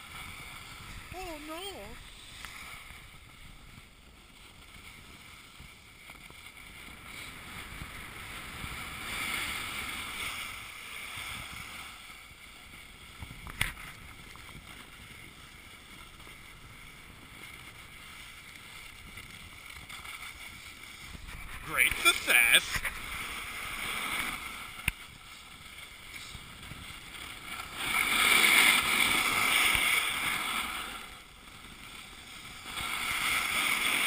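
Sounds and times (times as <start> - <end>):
snowboard scraping on snow: 0.0 - 34.0.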